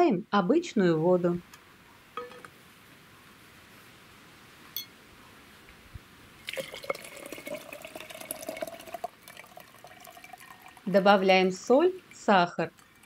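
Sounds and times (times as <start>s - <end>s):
water pouring into a glass jar: 6.4s - 13.0s.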